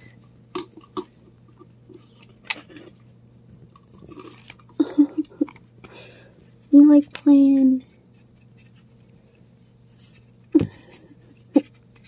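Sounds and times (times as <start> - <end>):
raccoons chewing on string: 0.5 - 5.9.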